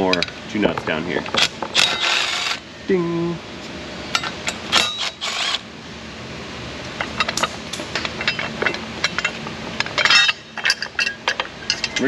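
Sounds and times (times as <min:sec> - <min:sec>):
metal fasteners and tools clinking: 0:00.0 - 0:02.6, 0:04.1 - 0:05.6, 0:06.9 - 0:12.0
steady low hum: 0:00.0 - 0:12.0.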